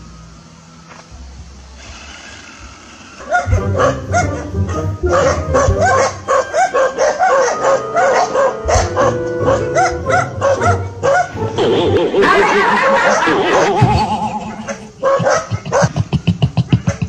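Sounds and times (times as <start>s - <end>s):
dogs barking and yelping: 3.2s - 17.0s
background music: 3.3s - 16.6s.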